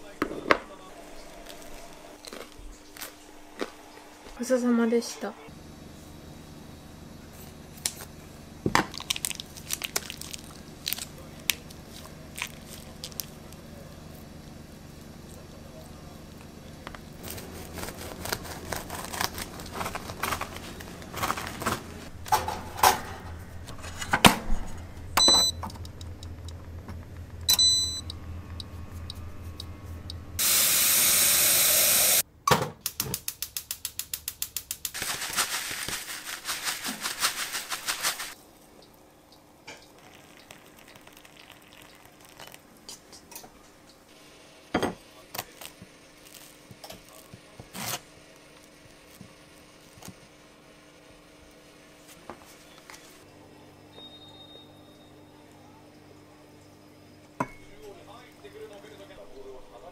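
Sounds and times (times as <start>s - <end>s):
low hum: 10.4s - 32.2s
short electronic beeps: 25.2s - 25.6s, 27.5s - 30.2s
hiss: 30.4s - 32.2s
water pouring from a kettle: 39.7s - 42.6s.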